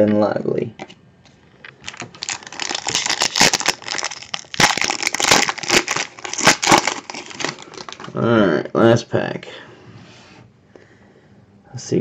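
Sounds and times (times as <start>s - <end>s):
foil wrapper crinkling and tearing: 1.6s - 8.2s.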